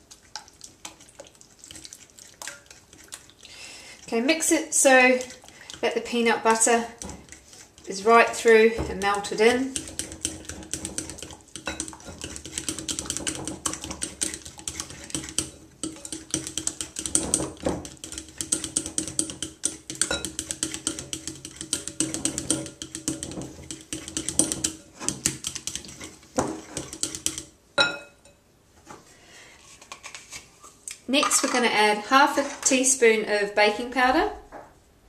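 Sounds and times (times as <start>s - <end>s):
knife clinking and scraping glass bowl: 6.9s - 28.4s.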